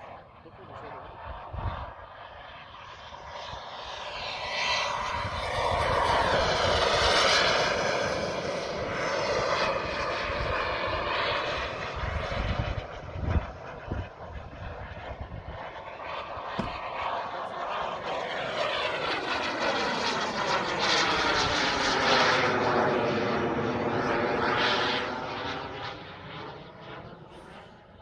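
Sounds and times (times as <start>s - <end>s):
model jet turbine rushing: 0.0s - 28.0s.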